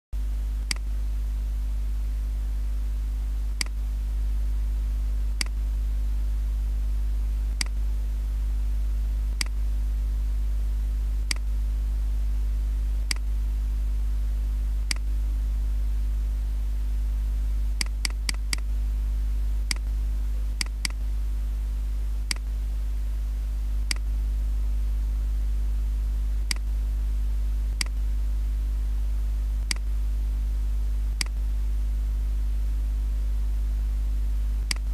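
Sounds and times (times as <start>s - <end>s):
low hum: 0.2s - 34.9s
computer mouse clicks: 0.6s - 0.9s, 11.3s - 11.5s, 14.9s - 15.1s, 19.7s - 19.9s, 20.6s - 21.0s, 22.3s - 22.5s, 26.5s - 26.7s, 29.6s - 29.9s, 34.6s - 34.9s.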